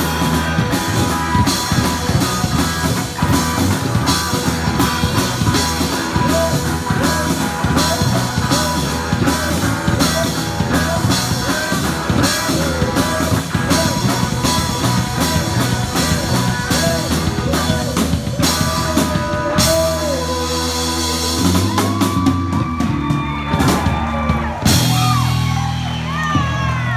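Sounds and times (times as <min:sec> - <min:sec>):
electric guitar bending lick: 0:00.0 - 0:23.5
rock band playing: 0:00.0 - 0:26.9.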